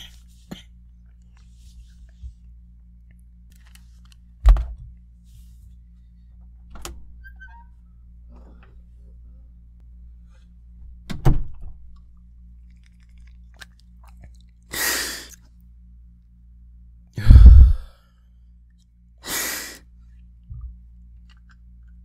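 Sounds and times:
heavy breath into microphone: 0:17.2 - 0:18.0.

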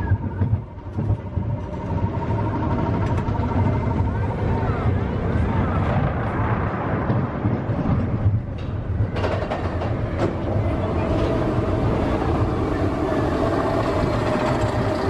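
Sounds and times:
roller coaster rumbling on track: 0:00.0 - 0:15.0
sharp track clacks: 0:08.5 - 0:15.0.

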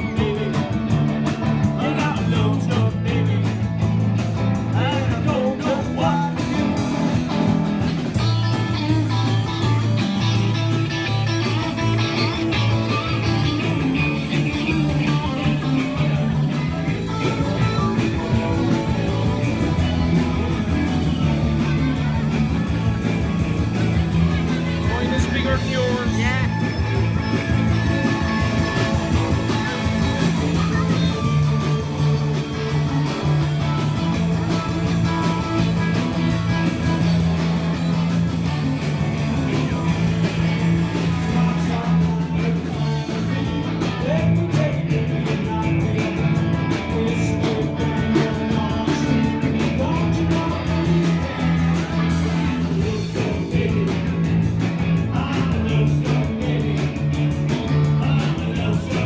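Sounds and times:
person singing: 0:00.0 - 0:03.7, 0:39.2 - 0:59.0
guitar: 0:00.0 - 0:59.0
live band through speakers: 0:00.0 - 0:59.0
steady bass line: 0:00.0 - 0:59.0.

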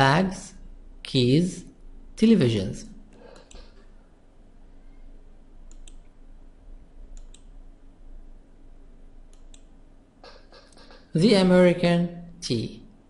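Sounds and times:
low room tone hum: 0:00.0 - 0:13.0
computer mouse clicking: 0:03.1 - 0:03.9, 0:05.6 - 0:06.1, 0:07.1 - 0:07.5, 0:09.3 - 0:11.1.

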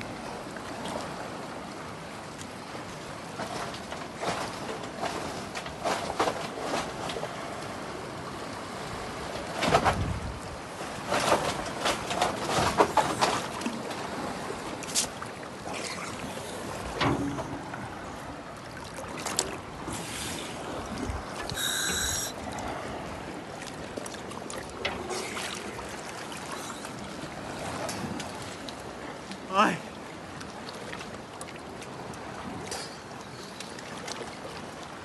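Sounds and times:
water splashing and lapping: 0:00.0 - 0:35.0
short high tone: 0:21.6 - 0:22.4.

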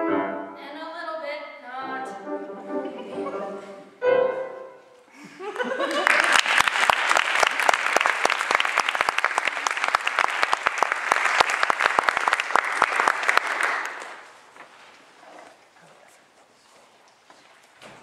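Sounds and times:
small audience applauding: 0:05.5 - 0:14.4
close claps: 0:05.6 - 0:14.4.

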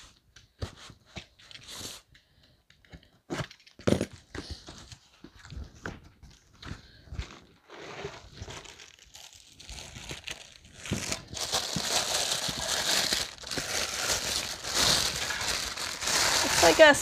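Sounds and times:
plastic bag crinkling: 0:07.5 - 0:17.0.

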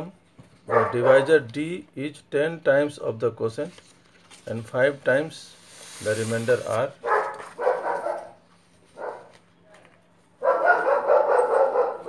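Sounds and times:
dog barking: 0:00.7 - 0:01.3, 0:07.0 - 0:08.4, 0:09.0 - 0:09.4, 0:10.4 - 0:12.0.

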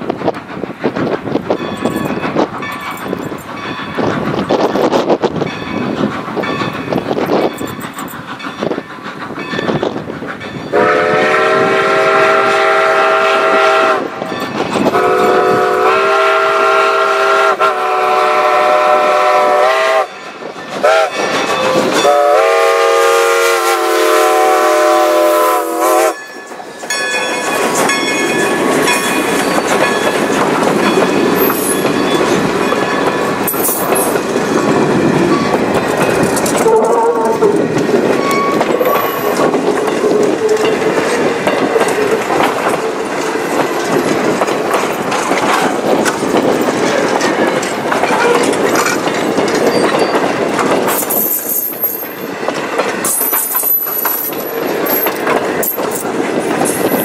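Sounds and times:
train wheels clacking over rail joints: 0:00.0 - 0:57.0
steam locomotive whistle blasts: 0:10.7 - 0:14.2, 0:14.9 - 0:20.1, 0:20.8 - 0:26.2, 0:36.6 - 0:37.6.

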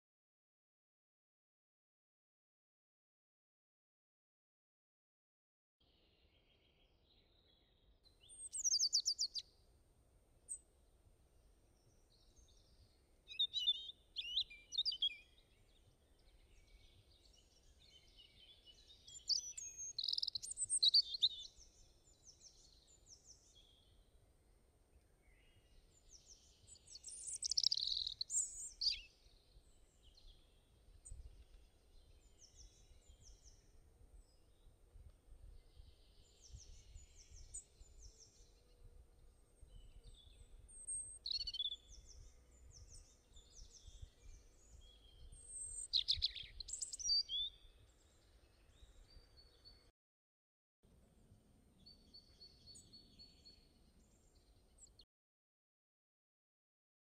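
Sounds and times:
birds chirping and trilling: 0:08.2 - 0:09.4, 0:12.2 - 0:24.0, 0:25.2 - 0:34.4, 0:35.5 - 0:49.8.

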